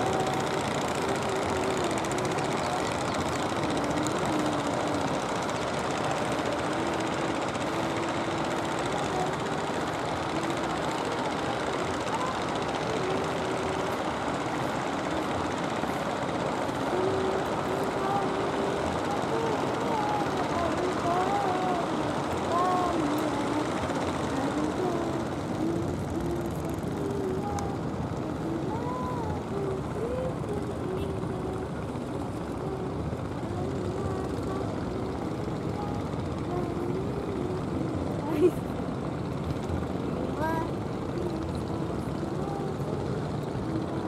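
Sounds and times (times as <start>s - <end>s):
boat motor droning: 0.0s - 44.0s
wind: 0.0s - 44.0s.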